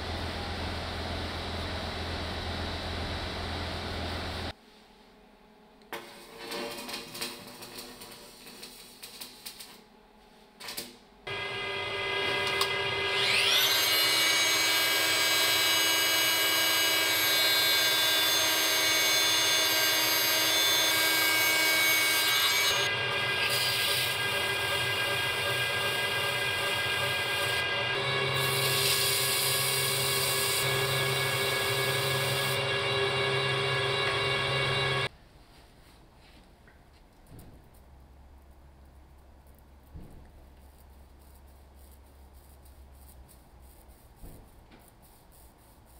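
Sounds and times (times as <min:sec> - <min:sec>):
welding crackle: 0:06.0 - 0:09.8
lathe and sander machine whine: 0:11.3 - 0:35.1.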